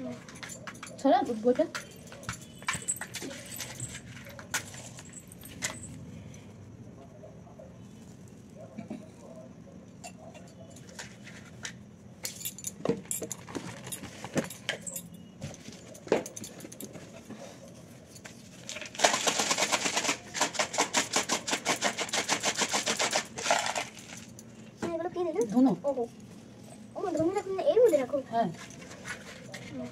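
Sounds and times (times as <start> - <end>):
rapid metallic jingling: 0.0 - 6.0
small objects clicking and clinking: 18.2 - 24.5.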